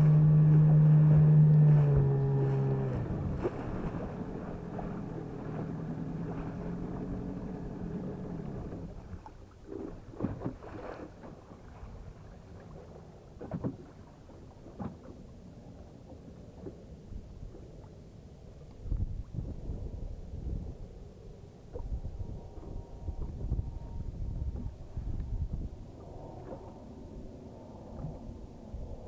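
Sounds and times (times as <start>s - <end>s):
outboard motor running: 0.0s - 18.0s, 21.6s - 29.0s
wind noise: 0.7s - 7.3s, 18.8s - 21.0s, 21.7s - 26.8s.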